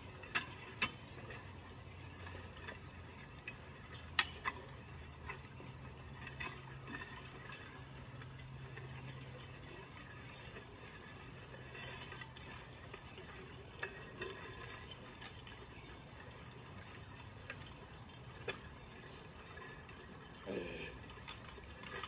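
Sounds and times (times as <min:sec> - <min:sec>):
weight sled dragged over pavement: 0:00.0 - 0:22.0.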